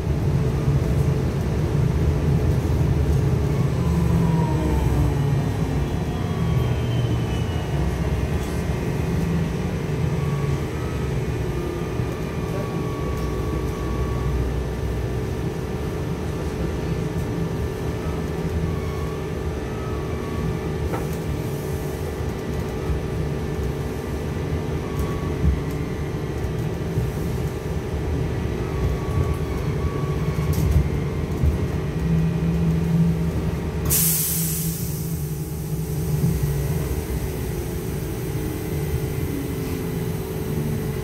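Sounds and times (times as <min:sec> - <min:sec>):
vehicle ride rumble: 0:00.0 - 0:41.0.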